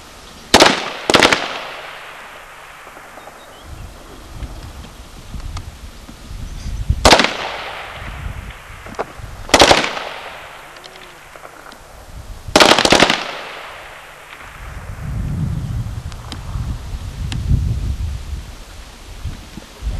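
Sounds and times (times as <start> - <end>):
rifle shots with echo: 0.5 - 3.6, 7.0 - 11.9, 12.5 - 14.8.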